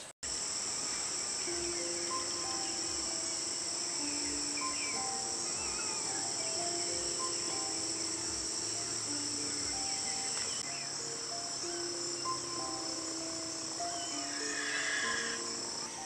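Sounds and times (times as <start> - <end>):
insects chorus: 0.0 - 16.0
soft instrumental melody: 0.8 - 16.0.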